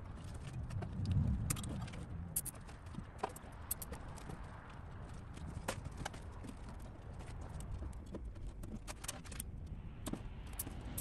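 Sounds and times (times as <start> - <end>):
low background rumble: 0.0 - 3.2
wiring clicking and tapping: 0.1 - 11.0.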